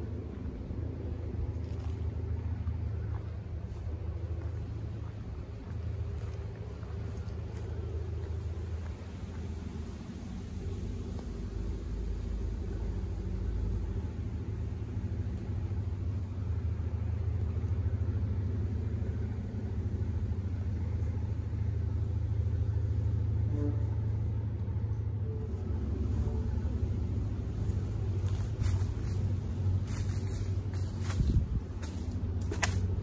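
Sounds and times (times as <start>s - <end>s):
low engine-like rumble: 0.0s - 33.0s.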